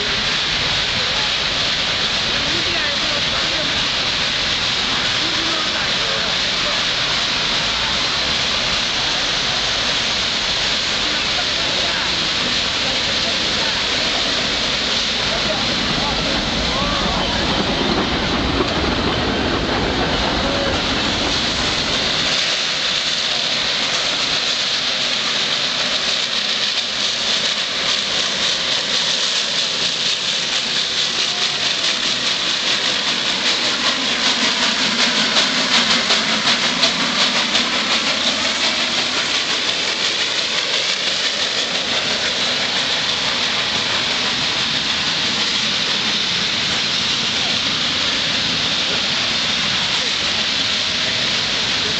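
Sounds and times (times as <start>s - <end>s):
hissing steam exhaust: 0.0s - 51.9s
steam locomotive chugging: 0.0s - 51.9s
wheels clicking over rail joints: 11.0s - 51.9s.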